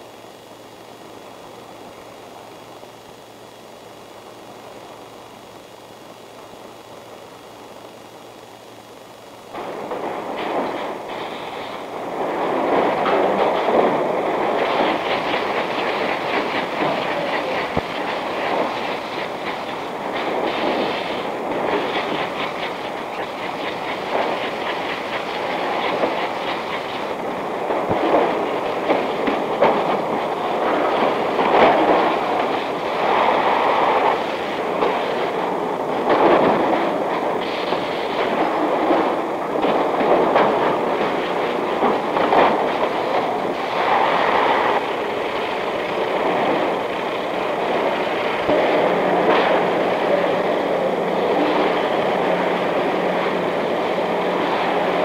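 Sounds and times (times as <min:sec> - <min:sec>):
conveyor machinery clatter: 0:00.0 - 0:55.0.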